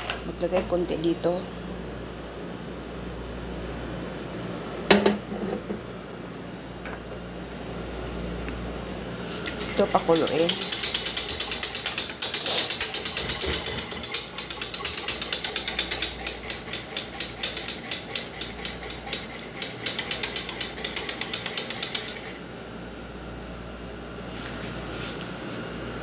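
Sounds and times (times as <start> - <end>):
whisk clicking against metal pan: 9.5 - 22.4.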